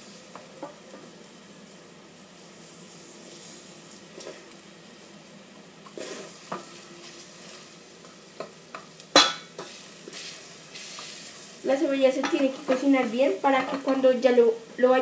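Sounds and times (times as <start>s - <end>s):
rice and onion sizzling in oil: 0.0s - 15.0s
spoon stirring and knocking pot: 13.6s - 14.0s.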